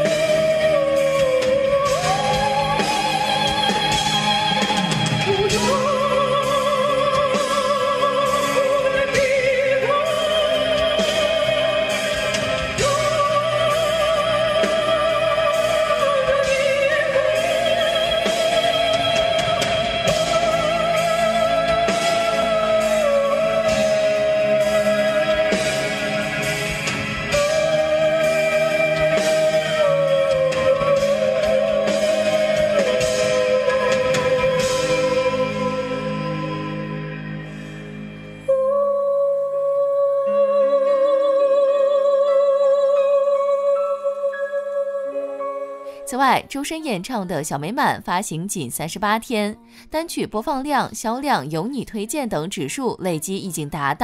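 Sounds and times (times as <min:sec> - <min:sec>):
singer breathing: 0:37.4 - 0:38.2, 0:45.8 - 0:46.1, 0:49.6 - 0:50.0.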